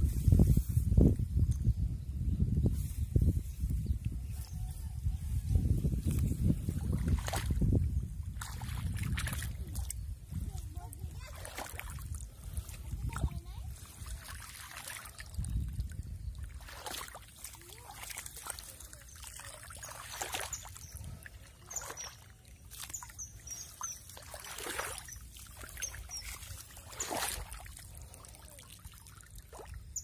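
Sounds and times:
muddy water splashing: 6.1s - 30.0s.

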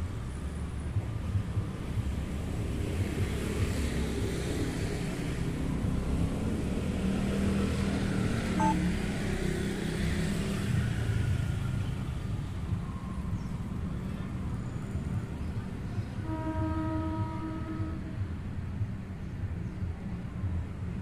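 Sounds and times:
motor vehicles rumbling: 0.0s - 21.0s
short high beep: 8.6s - 8.8s.

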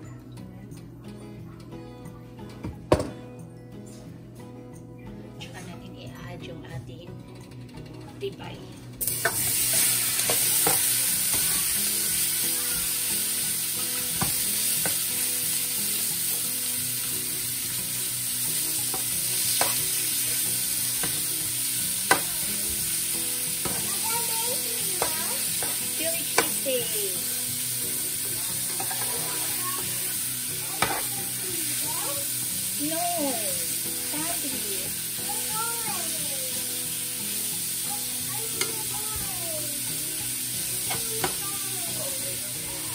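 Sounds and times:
meat sizzling in hot oil: 9.0s - 42.9s.

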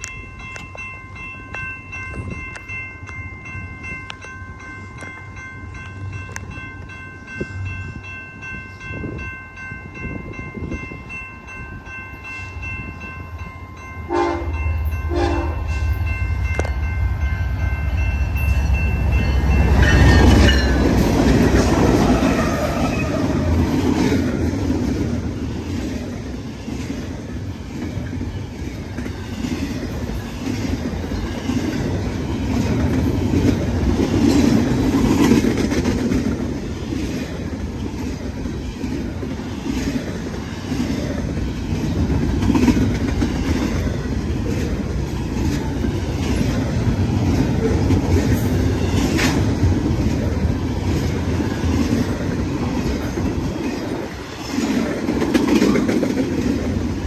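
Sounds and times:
crossing bell ringing: 0.0s - 57.0s
diesel locomotive passing: 0.0s - 57.0s
train horn blasts: 14.1s - 16.7s
train wheels clattering: 17.8s - 57.0s.

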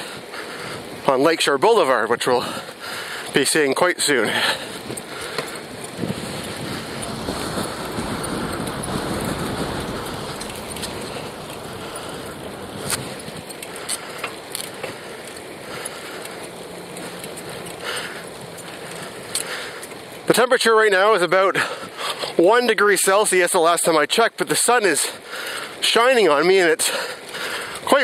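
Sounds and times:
tyre rolling noise: 3.3s - 20.4s
wind on microphone: 4.8s - 13.5s.

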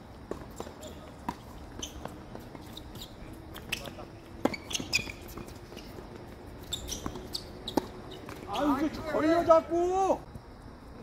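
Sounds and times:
tennis balls struck and bouncing: 0.2s - 8.6s
short high squeaks: 1.8s - 6.0s, 6.6s - 9.0s.

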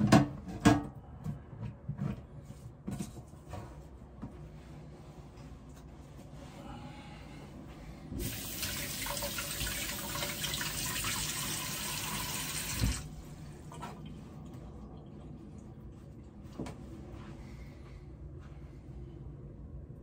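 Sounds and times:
tap water running into sink: 8.2s - 13.1s.

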